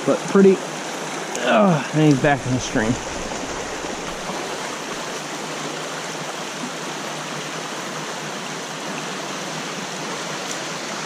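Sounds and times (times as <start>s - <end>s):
stream water rushing: 0.0s - 11.0s.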